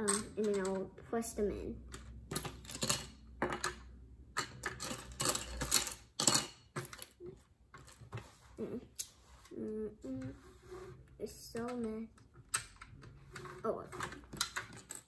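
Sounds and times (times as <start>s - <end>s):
plastic bricks clicking: 11.6s - 15.0s.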